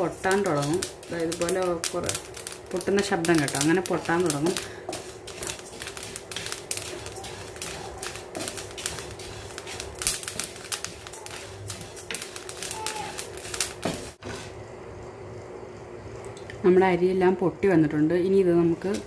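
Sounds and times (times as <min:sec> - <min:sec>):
rice crackling and popping in pan: 0:00.0 - 0:14.5, 0:18.8 - 0:19.0.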